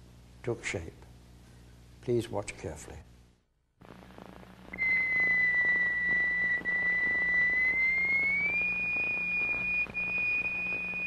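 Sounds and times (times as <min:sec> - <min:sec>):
low hum: 0:03.2 - 0:11.0.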